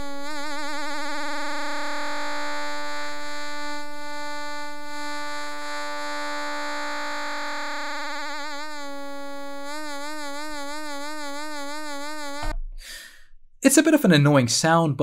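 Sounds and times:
synth tone with vibrato: 0:00.0 - 0:12.6.

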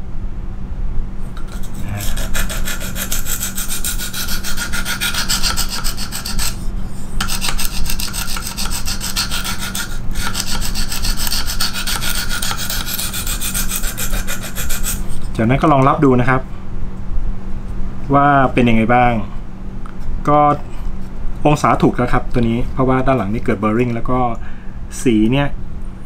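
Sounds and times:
sharpening stone rasping on knife: 0:01.4 - 0:15.3.

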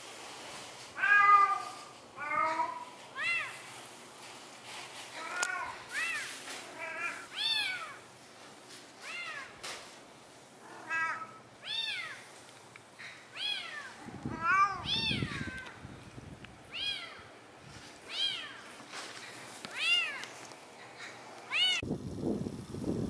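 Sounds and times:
cat meowing: 0:01.0 - 0:03.6, 0:05.2 - 0:08.0, 0:10.7 - 0:12.3, 0:13.3 - 0:15.8, 0:16.7 - 0:17.3, 0:18.1 - 0:18.6, 0:21.5 - 0:21.8.

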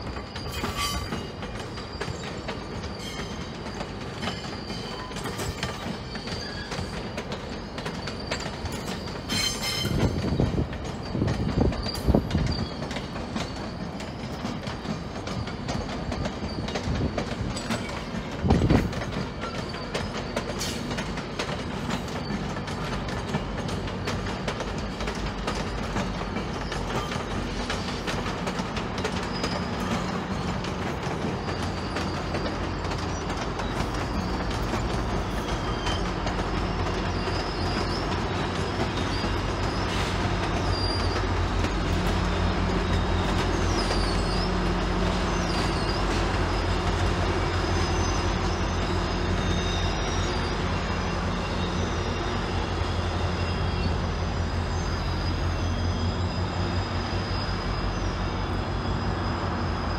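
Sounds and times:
diesel locomotive engine drone: 0:00.0 - 0:59.9
steel wheel squeal: 0:00.0 - 0:59.9
train rumble: 0:00.0 - 0:59.9.

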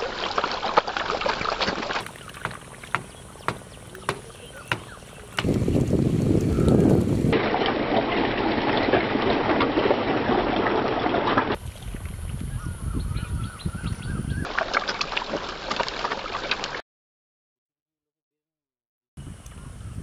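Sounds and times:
fish splashing in water: 0:00.0 - 0:06.2, 0:14.4 - 0:16.8.

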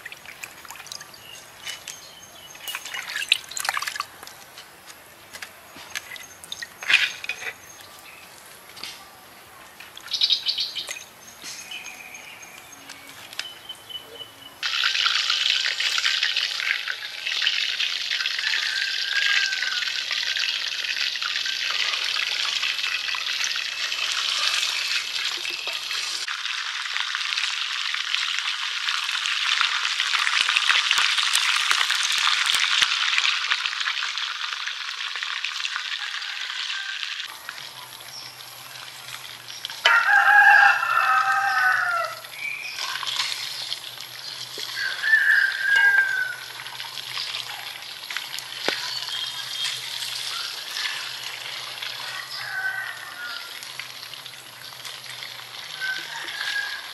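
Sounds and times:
fish deep-frying in oil: 0:14.6 - 0:56.9
rooster crowing: 0:18.2 - 0:20.1, 0:36.0 - 0:37.3, 0:39.8 - 0:42.3, 0:44.7 - 0:46.5, 0:50.3 - 0:53.6, 0:55.8 - 0:56.9.

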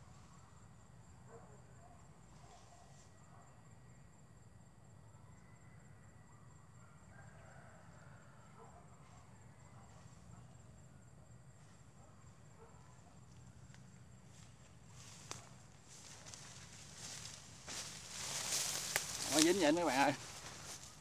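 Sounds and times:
high insect trill: 0:09.3 - 0:21.0.

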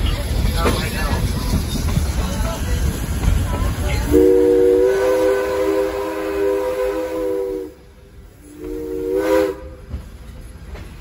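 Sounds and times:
steam locomotive chime whistle: 0:04.1 - 0:07.7, 0:08.5 - 0:09.8.

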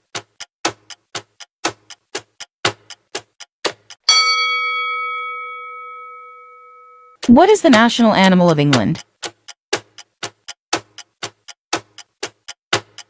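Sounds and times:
clock ticking: 0:00.0 - 0:13.0
bright chime: 0:04.1 - 0:07.2.

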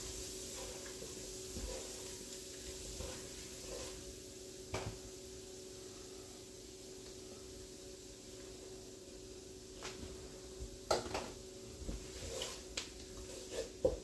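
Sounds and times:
wooden paddle stirring and knocking: 0:00.0 - 0:04.1, 0:11.8 - 0:14.0
vegetables sizzling in grease: 0:00.0 - 0:14.0.

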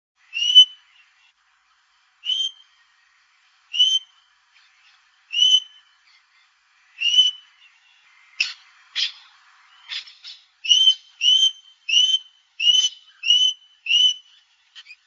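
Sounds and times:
parrot piping whistle: 0:00.3 - 0:00.8, 0:10.6 - 0:14.2.

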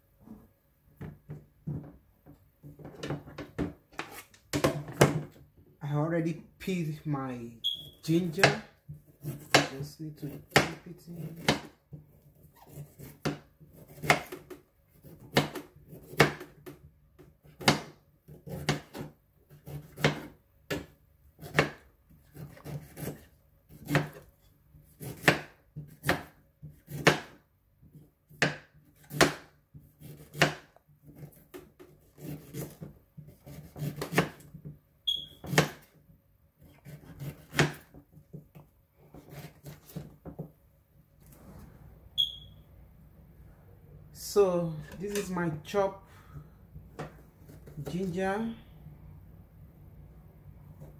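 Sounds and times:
knife chopping on plastic board: 0:08.3 - 0:34.8, 0:35.4 - 0:36.0, 0:36.6 - 0:40.6, 0:46.8 - 0:48.1.

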